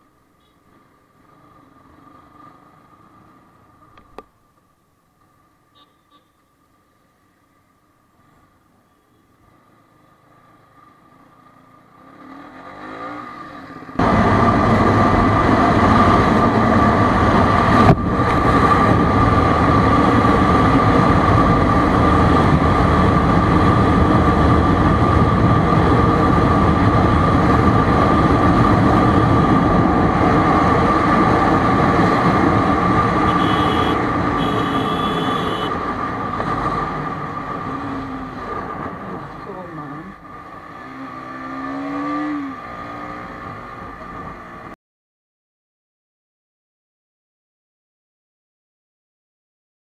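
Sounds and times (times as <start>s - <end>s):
motorcycle engine running: 33.1s - 35.7s.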